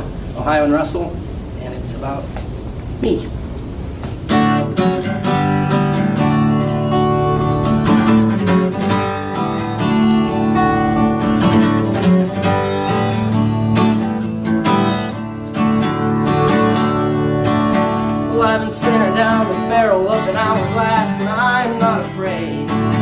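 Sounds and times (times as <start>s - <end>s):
acoustic guitar strumming chords: 4.2s - 23.0s.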